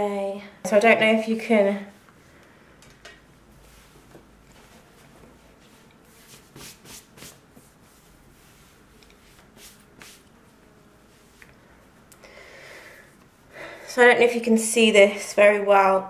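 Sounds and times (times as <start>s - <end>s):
soft brushing strokes: 1.5s - 12.1s, 12.8s - 14.8s
clothing rustling: 3.2s - 10.3s.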